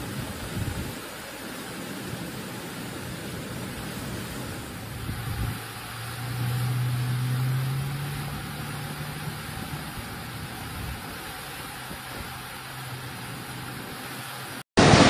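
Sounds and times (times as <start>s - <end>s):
flood water rushing: 0.0s - 15.0s
low motor hum: 4.8s - 13.9s.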